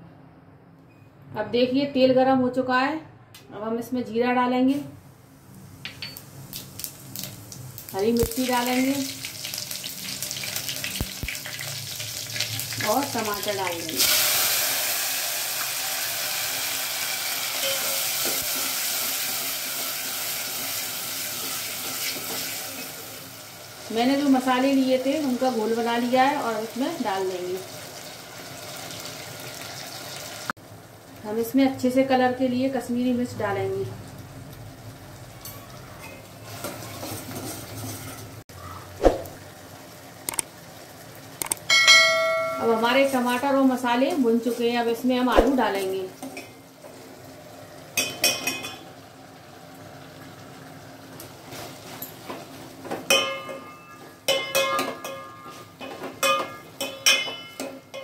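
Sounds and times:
tomatoes sizzling in hot oil: 5.6 - 32.2, 42.2 - 53.4
sharp clicks: 40.3 - 40.5, 41.4 - 41.7.

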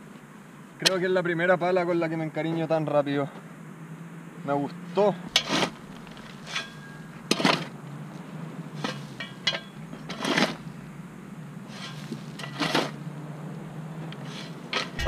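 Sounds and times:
shovel digging into gravel: 5.4 - 7.6.

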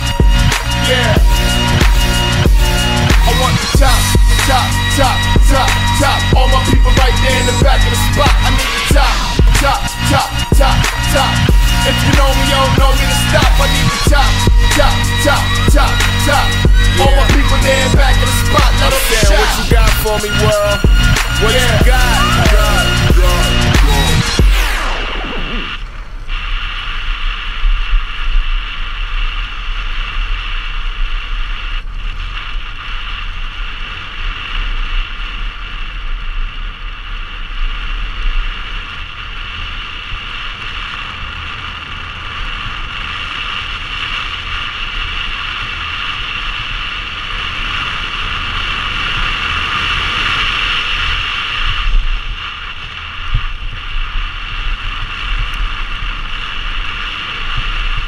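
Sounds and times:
wind on camera microphone: 24.6 - 58.0.

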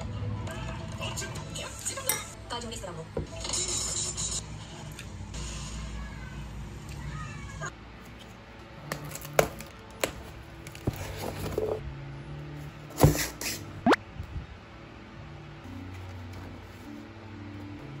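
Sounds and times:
cardboard box being handled: 10.7 - 11.8.

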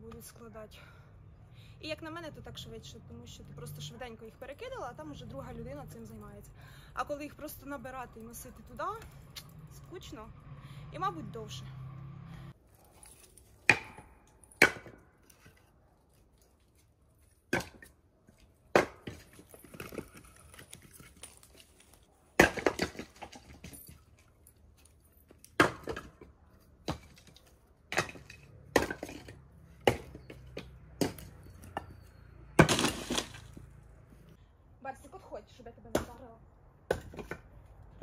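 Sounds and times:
logs knocking onto woodpile: 22.4 - 23.8, 25.6 - 31.9, 32.6 - 33.6.

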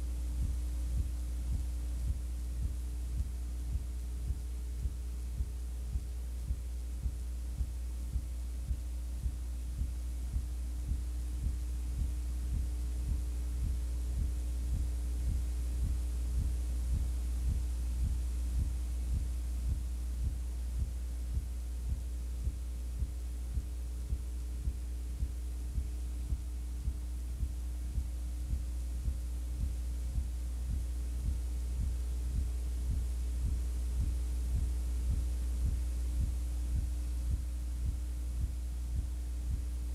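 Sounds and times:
low electrical hum: 0.0 - 39.9
soft repeating pulse: 0.0 - 39.9.

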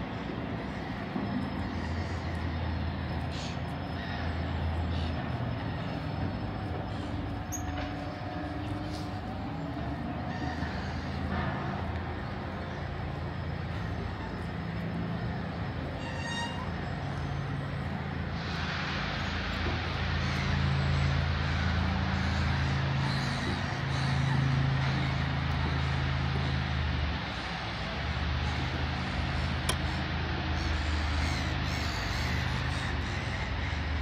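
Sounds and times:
low mechanical hum: 0.0 - 34.0
rushing hiss: 16.9 - 34.0.

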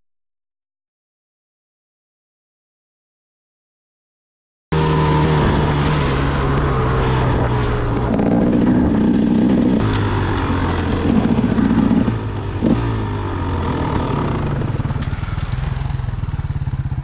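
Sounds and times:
dirt bike engine revving: 4.7 - 17.0.

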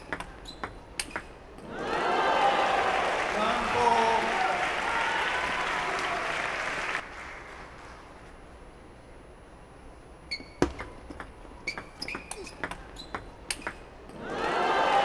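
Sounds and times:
table tennis ball clicks: 0.0 - 1.3, 10.6 - 13.8
crowd applause: 1.7 - 8.0, 14.2 - 15.0.

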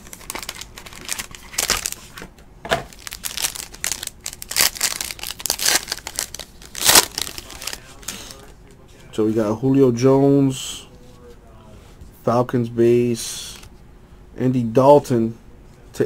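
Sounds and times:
foil pack crinkling and tearing: 0.0 - 2.2, 2.9 - 8.5.

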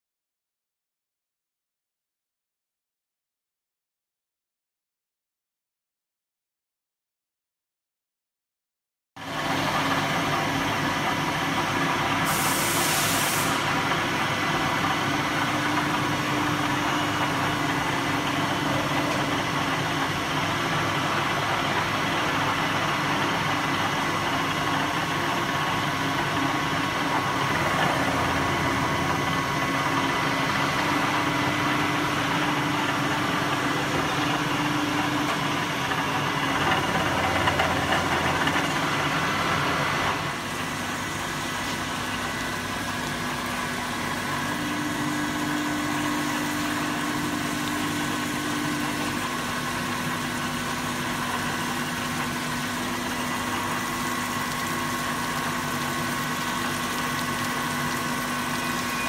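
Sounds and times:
coolant flooding: 9.2 - 59.0
milling machine whine: 9.2 - 59.0
cutting hiss: 12.2 - 13.8.

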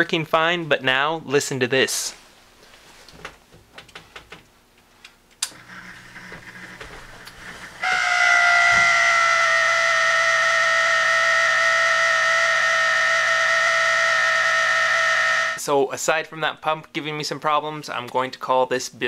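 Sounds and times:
water pump humming: 5.4 - 15.6
high-pitched pump whine: 5.5 - 15.6.

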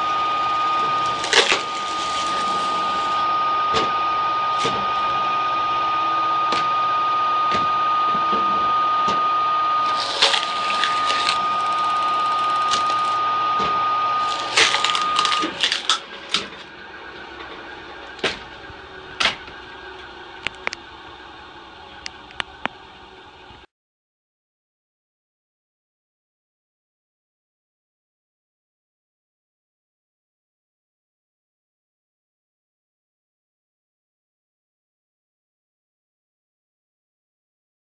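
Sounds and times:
electric motor hum and whine: 0.0 - 23.7
wood splitting cracks: 1.2 - 2.2, 10.0 - 11.4, 14.2 - 16.6.

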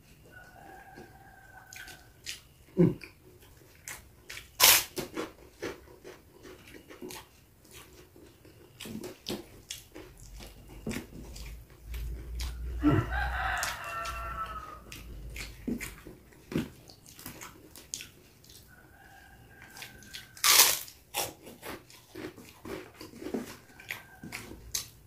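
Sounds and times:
crunching and chewing food: 0.0 - 25.0
rooster crowing: 0.2 - 2.2, 12.0 - 15.6, 18.7 - 20.6, 23.4 - 24.7.

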